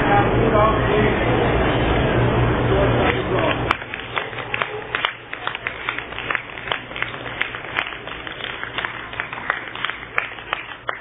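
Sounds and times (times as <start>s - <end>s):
large hall background noise: 0.0s - 11.0s
scattered hand clapping: 3.0s - 11.0s.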